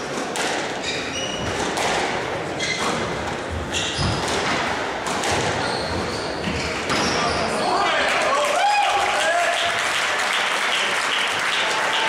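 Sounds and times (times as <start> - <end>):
sneakers squeaking on wooden floor: 0.6 - 7.7
squash ball cracking off rackets: 1.4 - 5.7.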